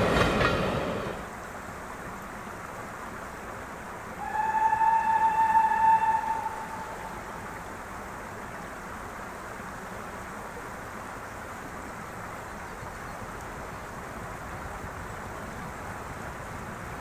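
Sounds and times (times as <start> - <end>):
brook flowing over brushwood: 1.2 - 4.3, 6.5 - 17.0.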